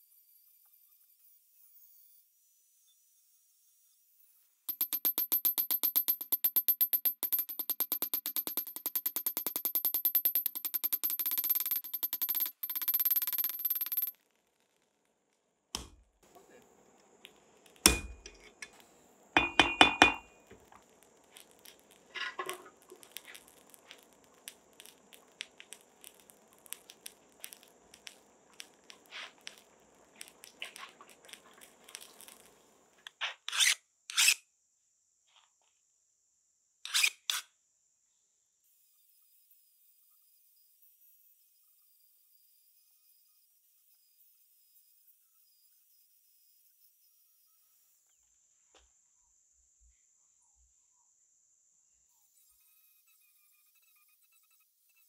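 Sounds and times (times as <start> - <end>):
hammer striking anvil: 4.7 - 14.1, 17.8 - 18.4, 19.4 - 20.4
metal tools clinking: 4.7 - 14.1.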